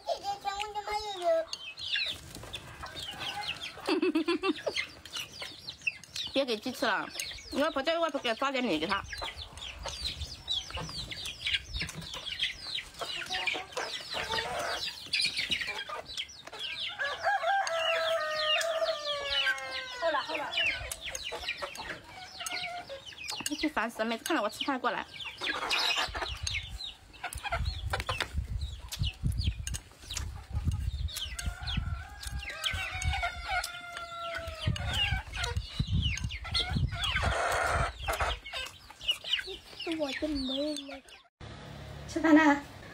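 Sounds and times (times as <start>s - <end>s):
chickens clucking: 0.0s - 41.3s
rooster crowing: 16.9s - 20.8s
chopsticks clicking against bowl: 29.6s - 31.5s.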